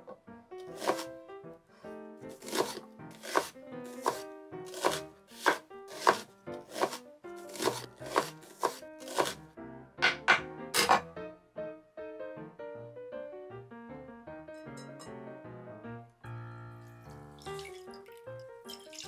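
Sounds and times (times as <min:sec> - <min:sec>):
knife chopping onion on wooden board: 0:00.6 - 0:01.1, 0:02.3 - 0:09.4.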